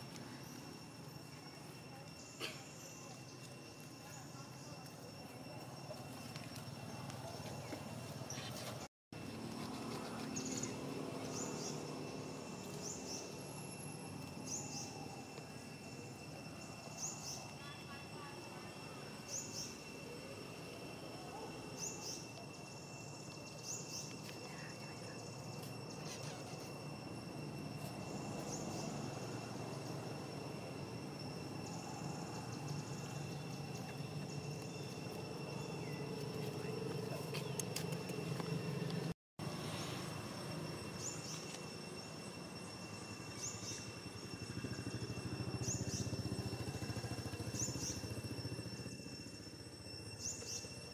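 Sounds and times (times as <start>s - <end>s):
thin high insect tone: 0.0s - 50.9s.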